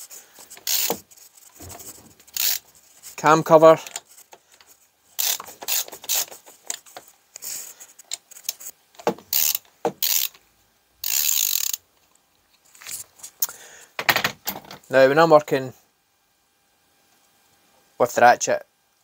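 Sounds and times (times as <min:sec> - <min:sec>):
ratchet wrench clicking: 0:00.6 - 0:01.0, 0:01.9 - 0:02.7, 0:05.2 - 0:06.3, 0:09.3 - 0:10.4, 0:11.0 - 0:11.8.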